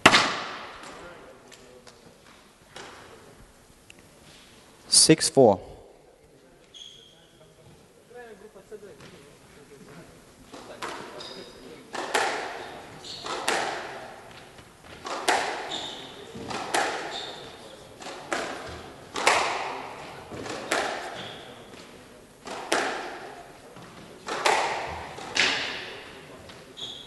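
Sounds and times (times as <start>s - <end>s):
racket striking ball: 0.0s - 1.0s, 11.9s - 14.2s, 15.0s - 21.5s, 22.4s - 23.3s, 24.2s - 26.0s
ball hitting walls: 0.0s - 1.2s, 11.9s - 21.8s, 22.4s - 26.0s
shoes squeaking on wooden floor: 6.6s - 7.9s, 10.6s - 11.8s, 12.6s - 13.5s, 14.3s - 17.7s, 21.2s - 22.0s, 26.5s - 27.0s.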